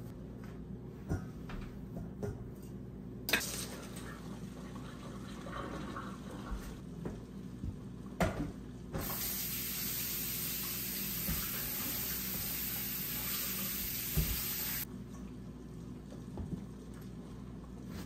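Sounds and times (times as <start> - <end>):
tap running into metal sink: 14.1 - 14.6.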